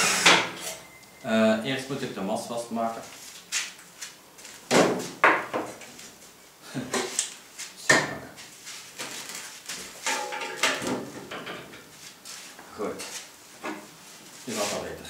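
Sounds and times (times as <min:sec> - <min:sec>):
steel clanking: 0:10.1 - 0:10.8.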